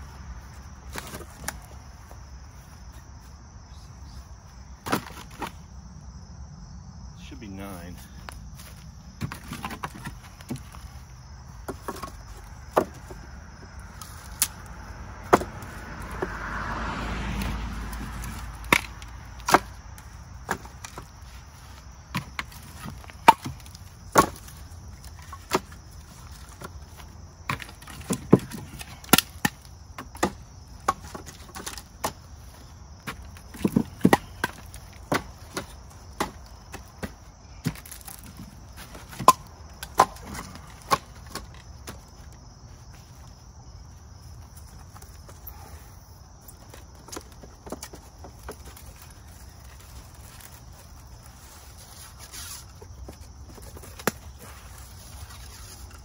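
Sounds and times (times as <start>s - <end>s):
firewood pieces clacking: 9.2s - 11.0s, 18.0s - 42.4s.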